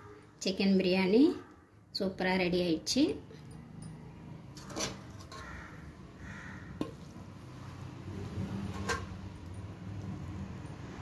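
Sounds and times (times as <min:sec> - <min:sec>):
metal spoon scraping a pot: 0:04.6 - 0:05.5, 0:08.2 - 0:09.2.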